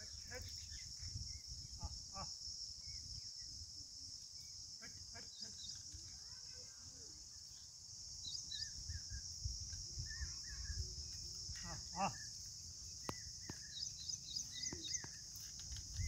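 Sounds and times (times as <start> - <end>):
insect chorus: 0.0 - 16.0
bird chirps: 7.2 - 16.0.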